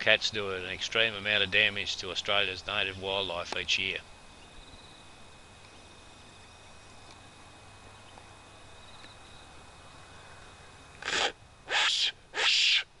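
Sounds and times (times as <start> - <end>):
faint high hum: 0.0 - 13.0
breathy whistle blasts: 11.1 - 12.8.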